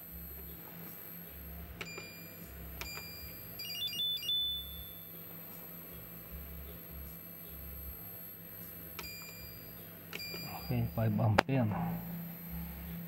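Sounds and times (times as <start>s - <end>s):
held electronic tone: 0.0s - 13.0s
steady low hum: 0.0s - 13.0s
electronic button beeps: 1.8s - 5.0s, 10.2s - 10.8s.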